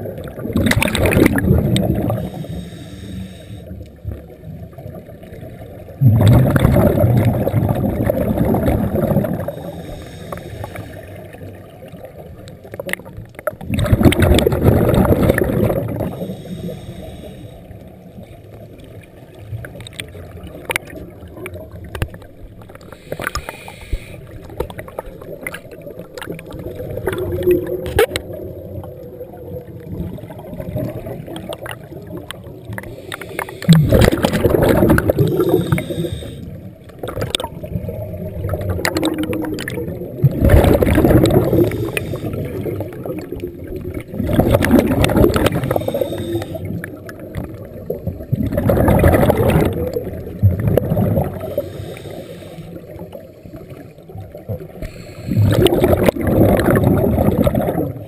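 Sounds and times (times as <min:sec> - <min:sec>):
steady underwater hiss: 0:00.0 - 0:12.8, 0:14.3 - 0:19.5, 0:20.2 - 0:58.0
regulator exhaling bubbles underwater: 0:00.0 - 0:18.2, 0:24.2 - 0:58.0
faint clicks: 0:19.6 - 0:28.4, 0:31.3 - 0:34.8.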